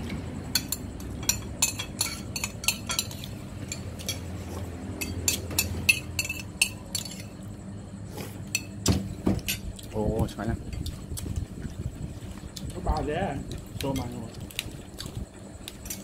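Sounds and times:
low background hum: 0.0 - 16.0
cutlery clinking against dishes: 0.6 - 4.3, 5.0 - 7.4.

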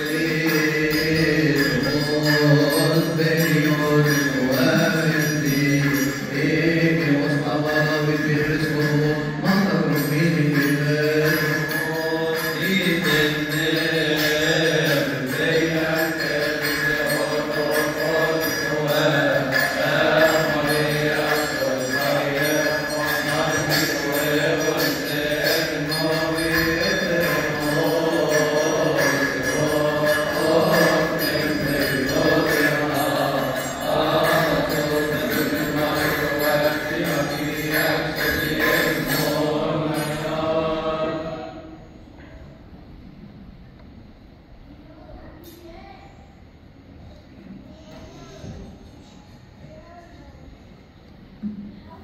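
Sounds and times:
steady high beat: 0.0 - 41.2
voices chanting a hymn in unison: 0.0 - 42.0.

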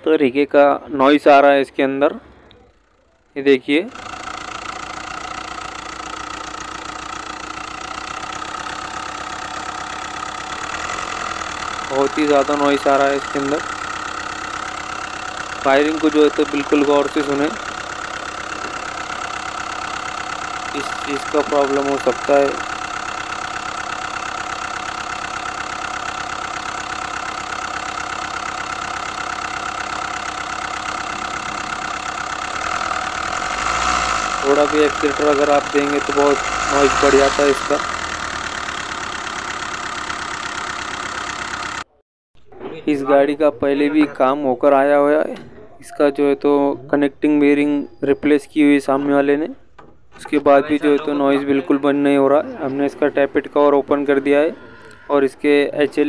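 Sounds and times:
diesel engine knocking: 2.4 - 41.9.

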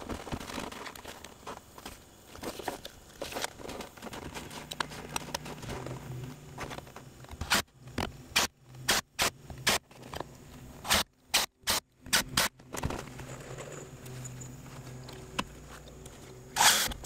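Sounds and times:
impact driver driving screws: 16.6 - 17.0.

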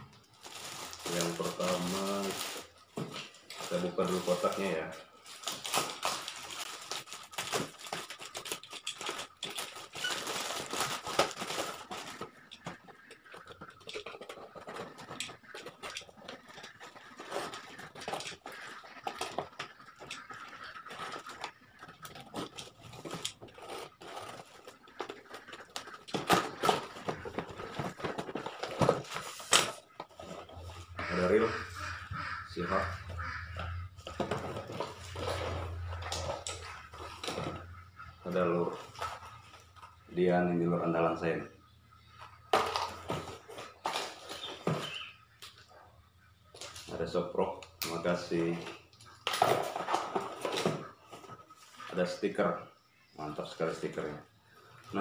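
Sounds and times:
clicks and rustles: 0.0 - 31.1, 33.0 - 38.2, 47.6 - 52.0
plastic wrapping tearing: 0.4 - 12.4.

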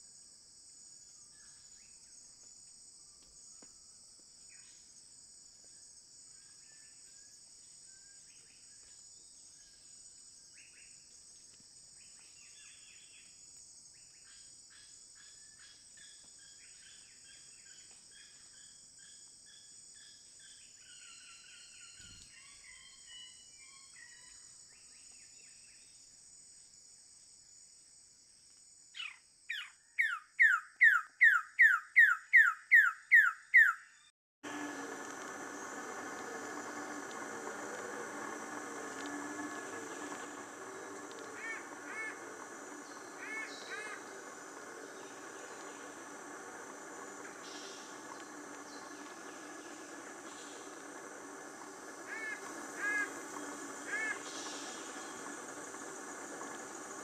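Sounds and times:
high insect drone: 0.0 - 29.6, 34.4 - 57.0
bird rapid downward-slurred calls: 29.0 - 33.8, 34.6 - 57.0
faint bird calls: 34.8 - 57.0.

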